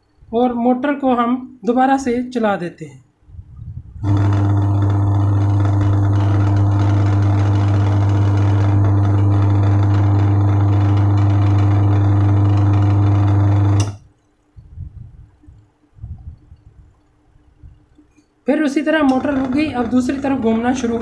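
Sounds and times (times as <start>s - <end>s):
electric motor humming: 4.0s - 14.0s, 19.0s - 21.0s.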